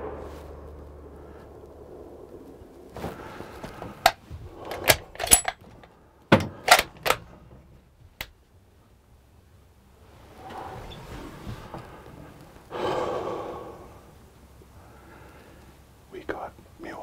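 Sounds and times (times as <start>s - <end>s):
rifle bolt metallic clicks: 4.0s - 5.8s, 6.4s - 7.3s.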